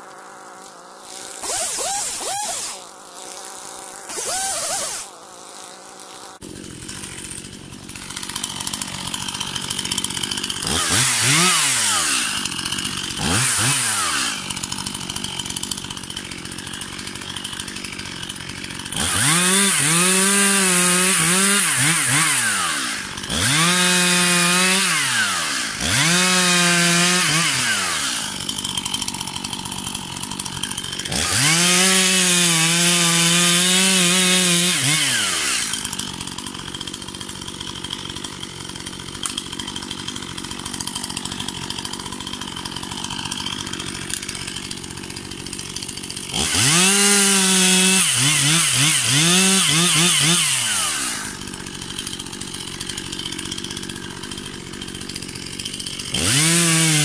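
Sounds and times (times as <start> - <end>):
chainsaw cutting logs: 0.0 - 57.0
chainsaw idling: 0.0 - 57.0.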